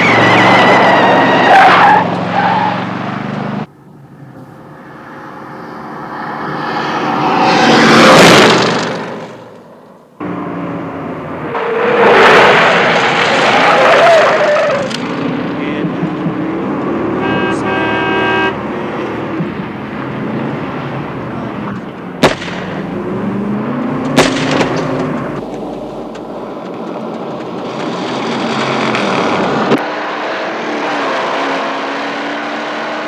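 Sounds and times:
road noise: 0.0s - 33.0s
sharp bangs: 22.2s - 23.1s, 24.0s - 26.3s.

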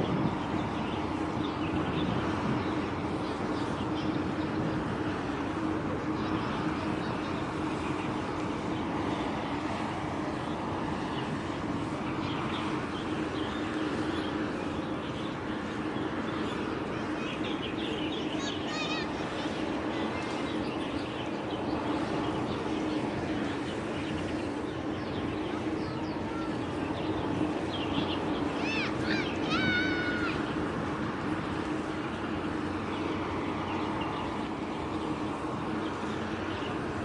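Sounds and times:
constant low hum: 0.0s - 37.0s
small birds chirping: 0.0s - 37.0s
waterside drone and hiss: 0.0s - 37.0s.

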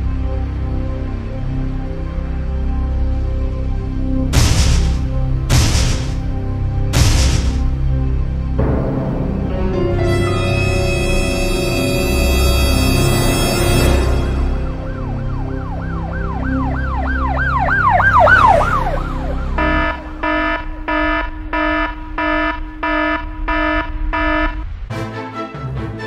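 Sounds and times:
low drone: 0.0s - 25.0s
siren wailing: 10.3s - 24.8s
pulsing alarm beeps: 17.6s - 24.8s.

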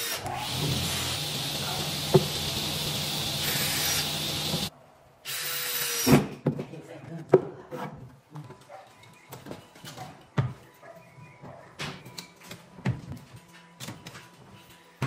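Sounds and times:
cordless drill driving screws: 0.0s - 4.7s, 5.3s - 6.1s.

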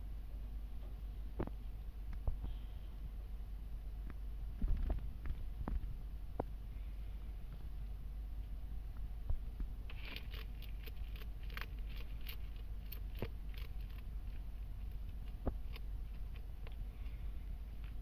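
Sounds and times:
lizard chewing crunchy insect: 9.8s - 18.0s.

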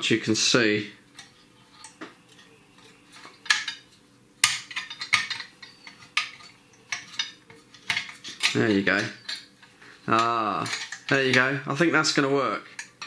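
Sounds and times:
metal parts clinking: 1.2s - 11.5s.

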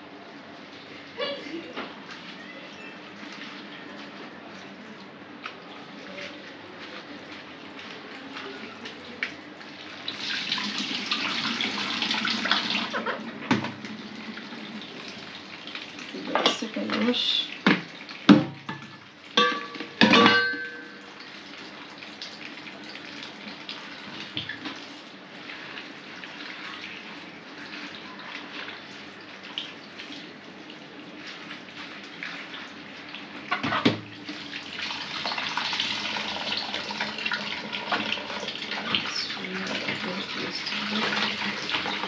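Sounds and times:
tap water splashing into tub: 10.1s - 20.4s, 23.6s - 24.8s, 33.4s - 42.0s
ringing clanks: 19.4s - 21.0s.

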